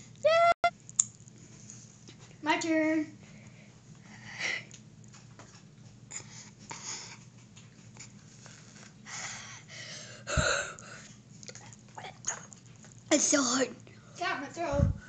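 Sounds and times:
boy huffing and gasping: 9.1s - 11.1s.

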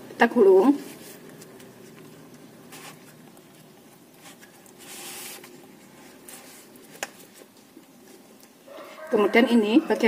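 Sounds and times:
banana leaf rustling: 2.6s - 7.5s.

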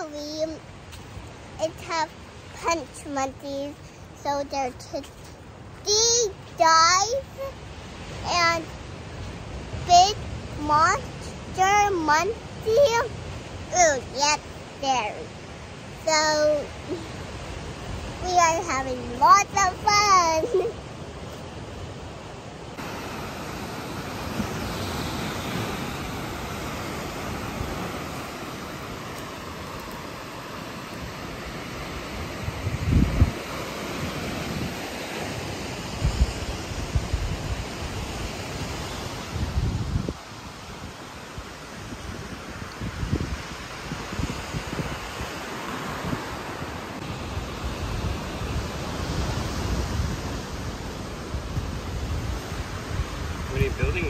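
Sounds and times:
wind buffeting microphone: 0.0s - 54.0s
surf breaking on beach: 6.3s - 54.0s.

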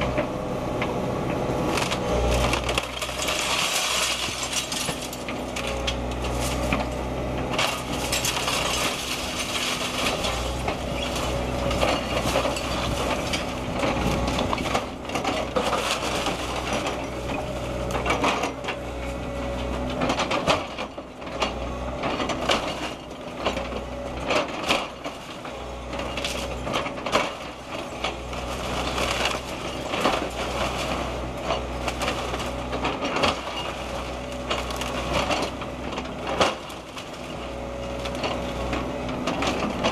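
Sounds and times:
diesel engine running: 0.0s - 39.9s
wood framing cracking: 1.6s - 39.9s
brick and debris crashing down: 2.6s - 5.8s.

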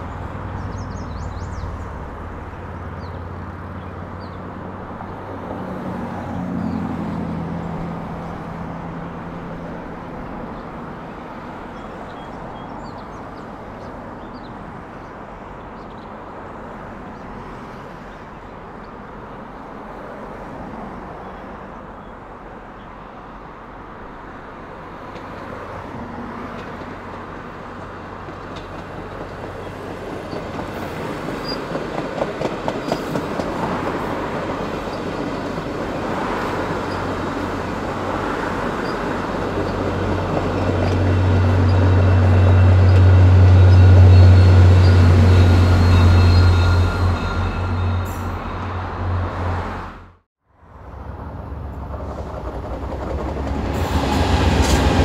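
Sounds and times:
passenger train rumbling past: 0.0s - 55.0s
train wheels clicking over rail joints: 28.2s - 45.9s.

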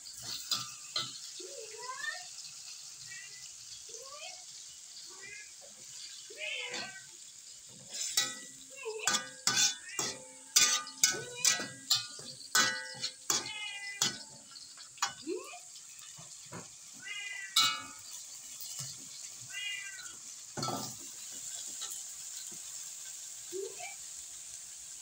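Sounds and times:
spoon knocking against metal pot: 8.2s - 15.2s, 17.6s - 18.0s
cat meowing: 17.0s - 17.9s, 19.5s - 20.2s.

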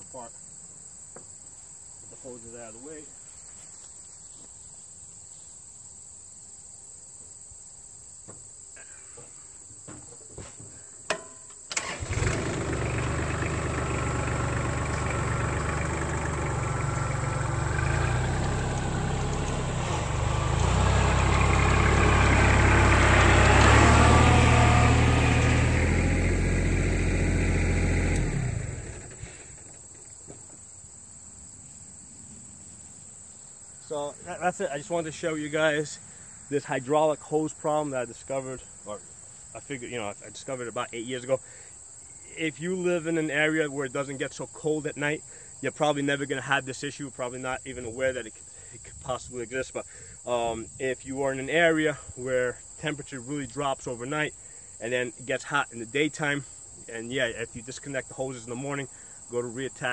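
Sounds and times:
tractor diesel engine running: 11.7s - 29.8s.

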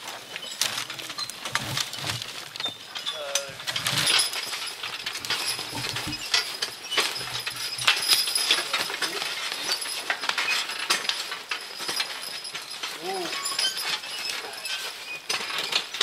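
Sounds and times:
hanging chain clinking: 0.1s - 16.0s
harness hardware clinking: 0.5s - 16.0s.

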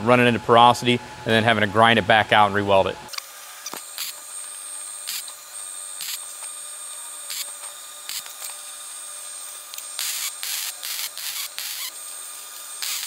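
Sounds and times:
welding arc hissing: 3.1s - 13.0s.

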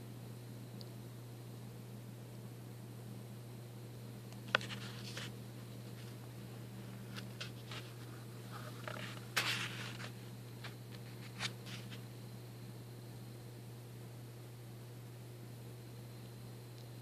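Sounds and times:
low room hum: 0.0s - 17.0s
phone handling clicks and scrapes: 6.9s - 12.0s.

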